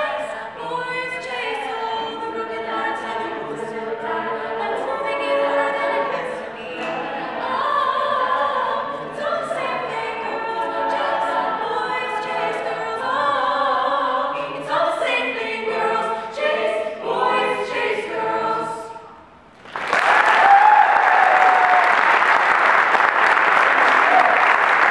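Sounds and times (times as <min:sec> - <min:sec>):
woman singing lead: 0:00.0 - 0:19.0
a cappella group singing: 0:00.0 - 0:19.3
audience applause: 0:19.6 - 0:24.9.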